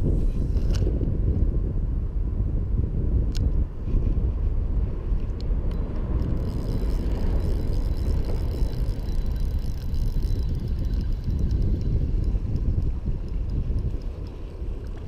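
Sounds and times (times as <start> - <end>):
wind buffeting microphone: 0.0 - 15.0
faint clicks: 5.3 - 15.0.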